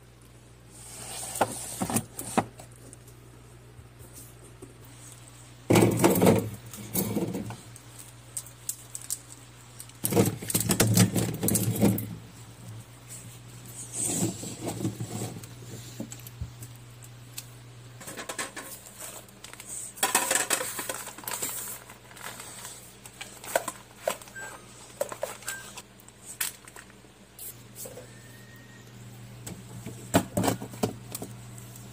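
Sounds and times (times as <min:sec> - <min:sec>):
refrigerator hum: 0:00.0 - 0:31.9.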